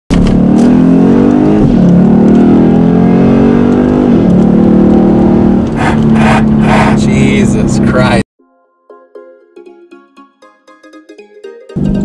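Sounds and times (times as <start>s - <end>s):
car engine accelerating: 0.1s - 8.2s.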